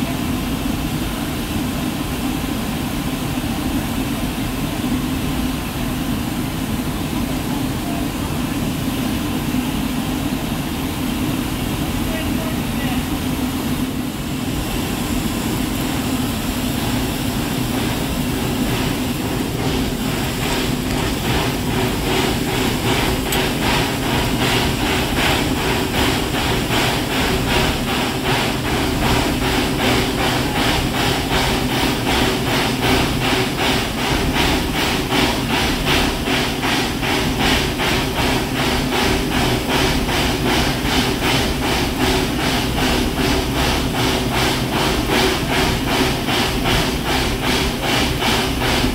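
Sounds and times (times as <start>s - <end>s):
steady hum: 0.0s - 48.9s
steam locomotive chuffing: 0.0s - 48.9s.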